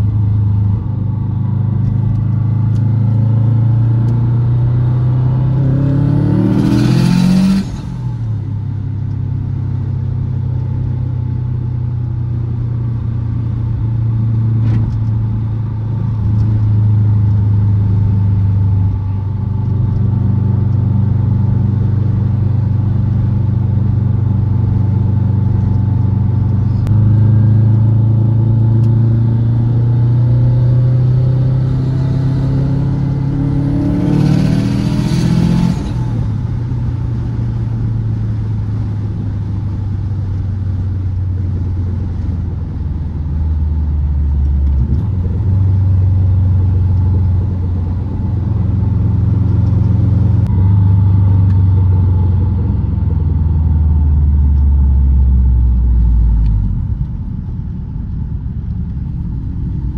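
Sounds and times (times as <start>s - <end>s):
turbocharged car engine revving: 2.5s - 8.2s, 26.4s - 38.0s.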